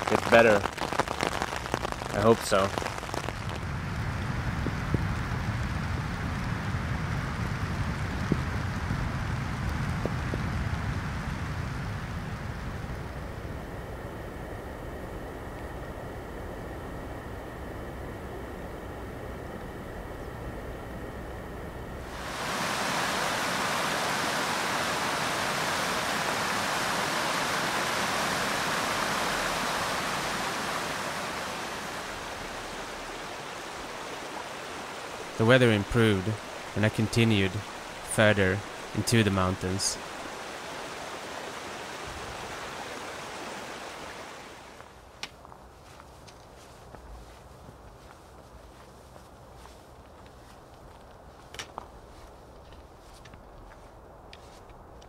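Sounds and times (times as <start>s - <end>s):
stream rushing over rocks: 0.0s - 3.5s, 22.0s - 44.9s
light rain: 0.0s - 55.0s
wind rumble: 0.0s - 55.0s.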